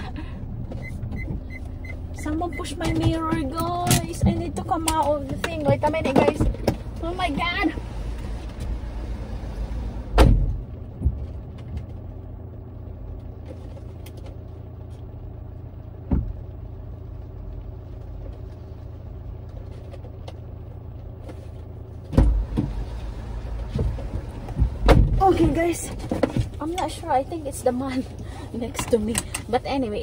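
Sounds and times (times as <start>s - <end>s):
car engine idling: 0.0s - 30.0s
car door thudding shut: 10.1s - 10.6s.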